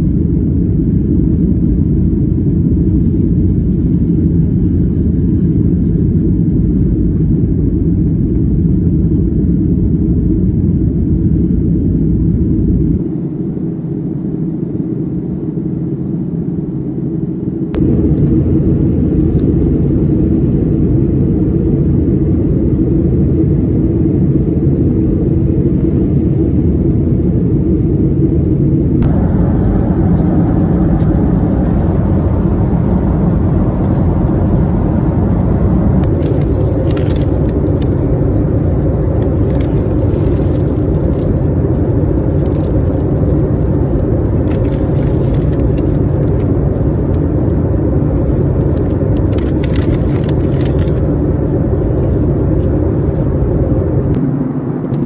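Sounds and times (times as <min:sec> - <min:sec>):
jet engines rumbling: 0:00.0 - 0:55.0
rushing air: 0:00.7 - 0:08.2, 0:12.3 - 0:55.0
plastic wrapping crinkling: 0:36.0 - 0:46.5, 0:48.2 - 0:53.2.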